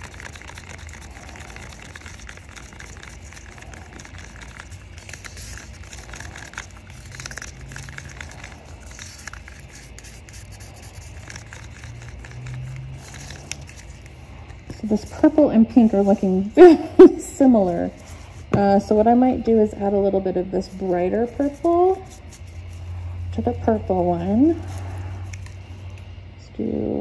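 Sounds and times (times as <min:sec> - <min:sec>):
stir stick scraping a cup: 0:00.0 - 0:16.4, 0:20.6 - 0:25.6.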